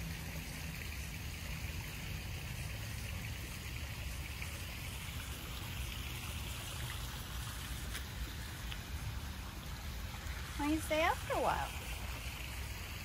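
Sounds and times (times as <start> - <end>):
water trickling and splashing: 0.0 - 13.0.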